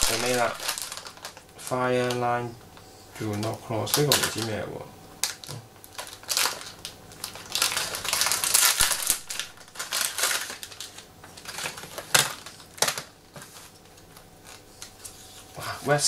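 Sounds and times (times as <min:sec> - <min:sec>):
plastic packet crinkling: 0:00.0 - 0:02.3, 0:03.2 - 0:15.1
sharp plastic crackles: 0:00.0 - 0:04.6, 0:05.2 - 0:15.1.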